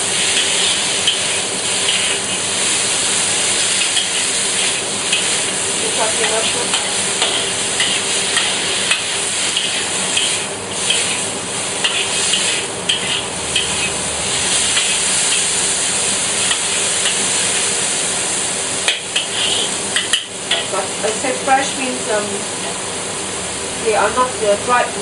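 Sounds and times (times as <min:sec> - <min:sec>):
vegetables sizzling in oil: 0:00.0 - 0:25.0
metal ladle scraping a wok: 0:00.2 - 0:02.5, 0:06.2 - 0:15.6, 0:18.9 - 0:20.7.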